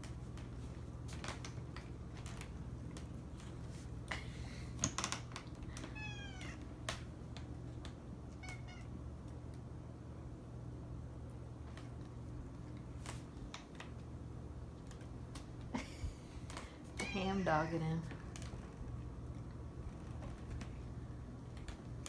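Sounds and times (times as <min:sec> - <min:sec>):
steady low hum: 0:00.0 - 0:22.0
cat meowing: 0:05.9 - 0:06.6, 0:08.3 - 0:08.9
light sharp clicks and taps: 0:06.8 - 0:08.6, 0:11.6 - 0:14.1.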